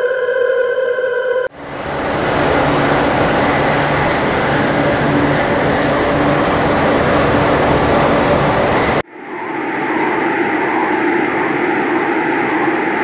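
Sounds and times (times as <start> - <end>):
dense electronic drone noise: 1.5 - 9.0.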